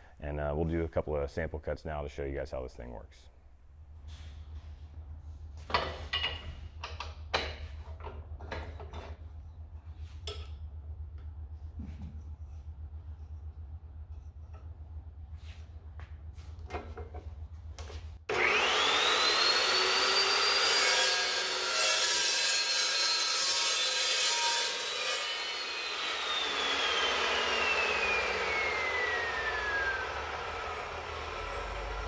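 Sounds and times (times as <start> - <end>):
chop saw motor whine: 18.3 - 21.7, 24.8 - 32.0
saw blade cutting metal tubing: 18.3 - 32.0.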